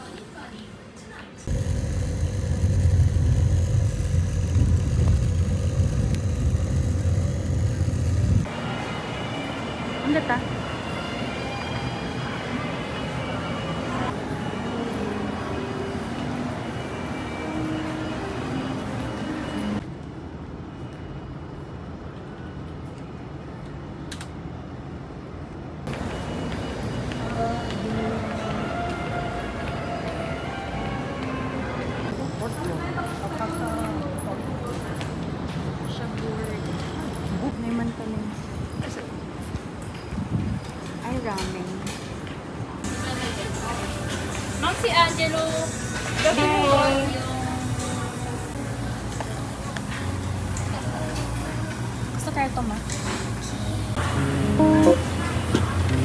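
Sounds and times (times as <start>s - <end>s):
street traffic rumble: 0.0s - 11.6s, 12.4s - 56.0s
faint steady whine: 1.5s - 8.5s
vehicle engine running: 1.5s - 8.5s.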